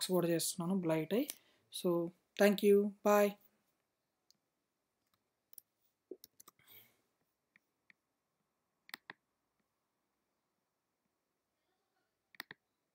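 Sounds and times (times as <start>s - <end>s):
computer keys clicking: 5.1s - 6.6s, 8.9s - 9.2s, 12.3s - 12.6s.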